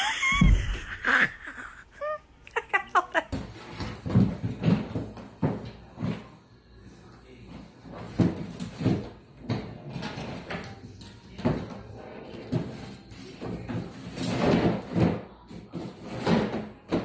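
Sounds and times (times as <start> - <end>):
cardboard box scraping on tile: 7.5 - 10.7, 12.0 - 17.0.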